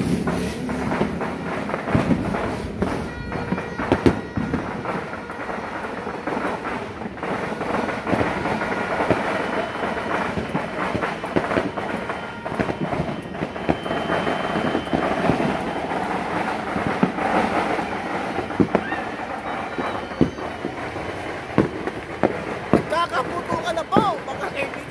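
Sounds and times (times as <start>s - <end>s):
fireworks crackling and popping: 0.0s - 24.9s
sharp firework bangs: 0.0s - 24.9s
thin high whistle: 9.3s - 21.3s.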